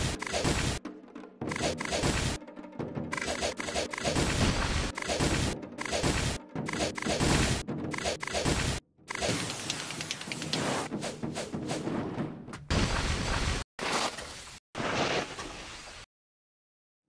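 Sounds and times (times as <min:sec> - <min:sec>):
cartoon punch and kick impacts: 0:01.7 - 0:02.4, 0:03.9 - 0:09.4.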